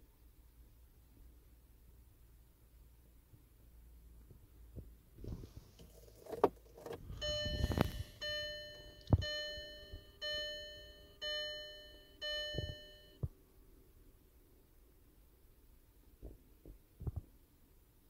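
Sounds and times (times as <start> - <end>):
dashboard warning chime: 7.0 - 13.2.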